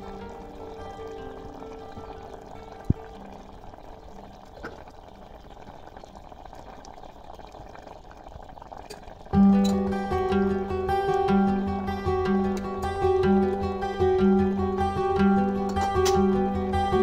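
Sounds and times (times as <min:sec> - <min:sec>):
plucked string music: 0:00.0 - 0:03.7, 0:09.4 - 0:17.0
curry bubbling in pot: 0:00.0 - 0:17.0.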